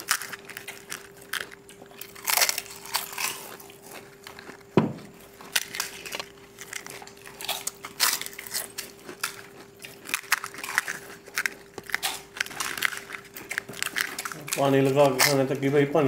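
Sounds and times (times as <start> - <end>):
people crunching crisp shells: 0.0 - 15.9
faint steady hum: 0.0 - 16.0
loud thump: 4.8 - 5.0.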